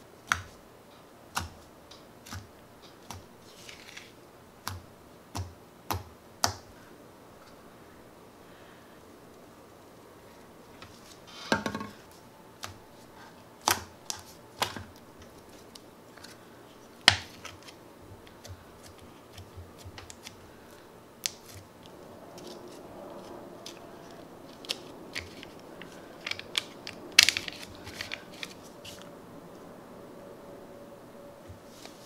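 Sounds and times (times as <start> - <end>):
plastic cup clicks and crackles: 24.5 - 29.0
soft rustle: 31.5 - 32.0.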